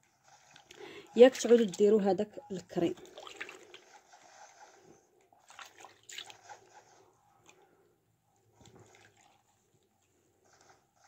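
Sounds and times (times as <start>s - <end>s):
water splashing in a basin: 2.9s - 3.8s, 5.4s - 6.5s.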